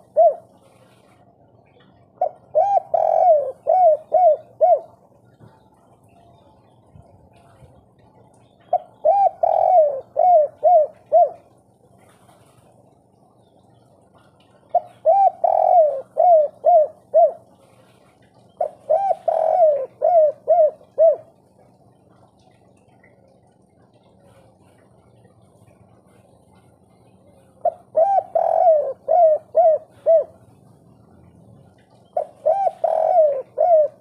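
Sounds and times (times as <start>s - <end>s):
dove cooing: 0.0s - 1.2s, 2.2s - 5.6s, 8.6s - 12.2s, 14.1s - 24.7s, 26.8s - 34.0s.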